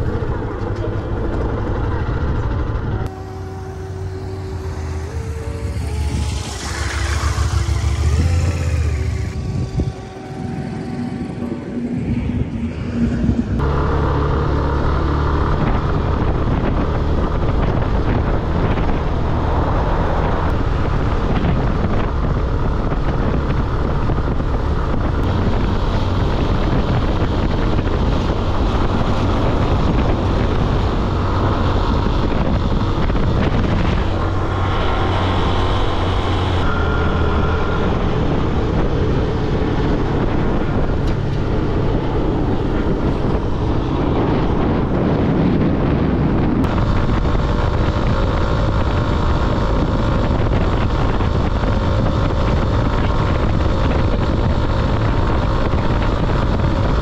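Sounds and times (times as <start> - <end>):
car engine and tyre drone: 0.0 - 57.0
rushing wind: 0.0 - 57.0.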